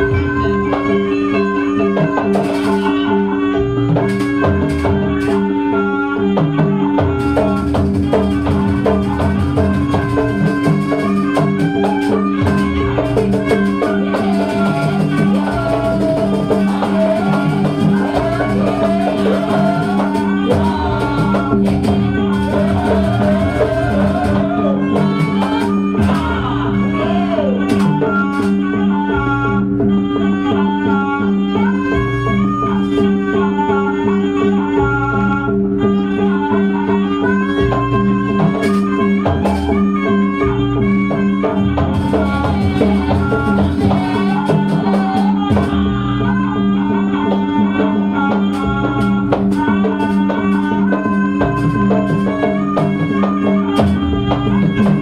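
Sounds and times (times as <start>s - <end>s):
drum beats: 0.0s - 33.6s, 35.7s - 55.0s
gamelan music: 0.0s - 34.3s.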